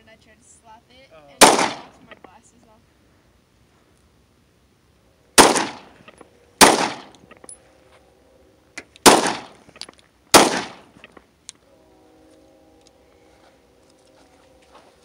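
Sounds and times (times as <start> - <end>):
pistol shots: 1.4 - 2.0, 5.4 - 6.0, 6.6 - 7.2, 9.0 - 9.6, 10.3 - 10.9.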